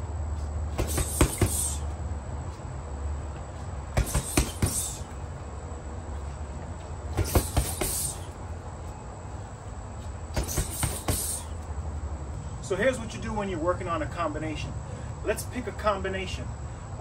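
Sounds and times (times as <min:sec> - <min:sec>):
low background hum: 0:00.0 - 0:17.0
punches on heavy bag: 0:00.7 - 0:01.8, 0:03.9 - 0:05.1, 0:07.1 - 0:08.3, 0:10.3 - 0:11.5.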